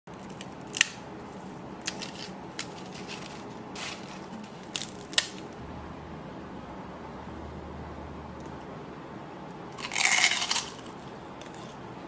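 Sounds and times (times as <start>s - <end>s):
crackers crackling and snapping: 0.1s - 5.6s, 9.7s - 11.8s
faint steady hum: 0.1s - 12.0s.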